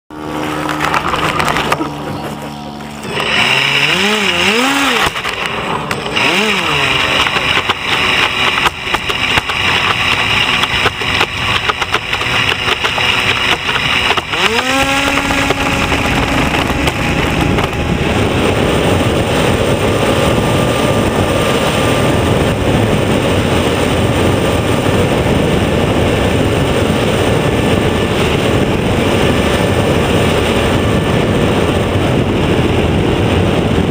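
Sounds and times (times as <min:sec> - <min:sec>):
model plane motor and propeller: 0:00.1 - 0:33.9
water rushing against floats: 0:00.2 - 0:22.5.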